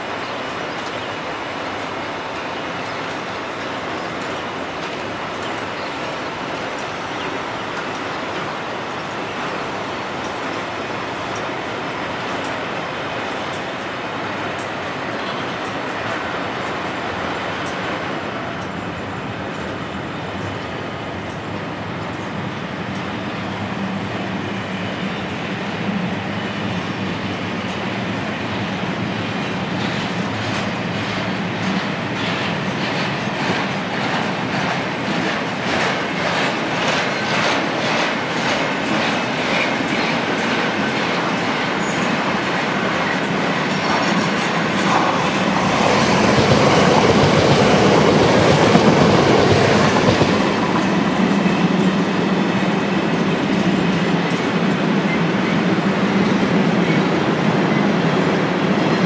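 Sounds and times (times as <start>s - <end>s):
freight train rolling past: 0.0s - 59.0s
train wheels clickety-clack: 0.0s - 59.0s.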